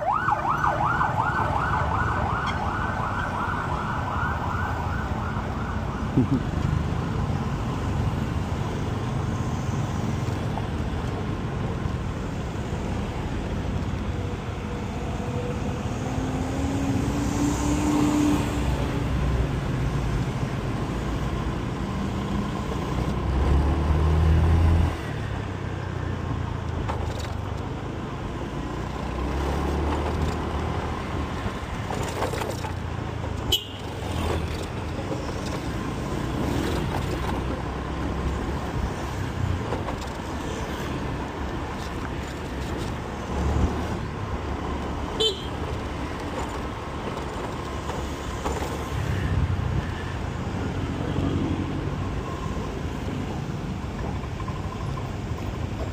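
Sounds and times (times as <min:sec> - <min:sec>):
traffic engine and road noise: 0:00.0 - 0:55.9
horn toots: 0:45.2 - 0:45.6.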